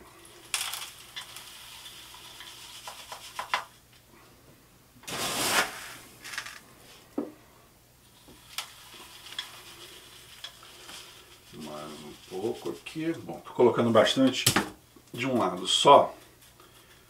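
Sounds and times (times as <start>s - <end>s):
rushing pour of grit: 8.4s - 13.2s.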